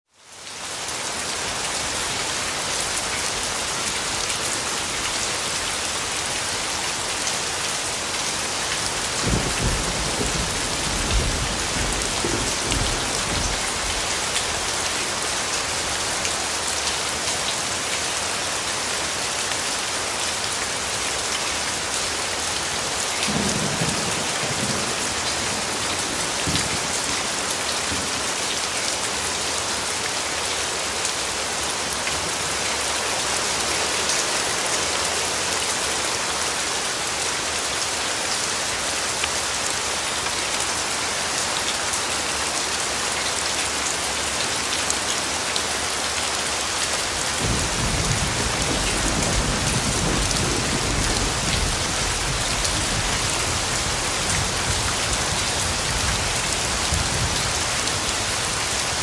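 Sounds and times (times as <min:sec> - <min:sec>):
steady rain hiss: 0:00.1 - 0:59.0
low thunder rumbling: 0:09.2 - 0:14.0.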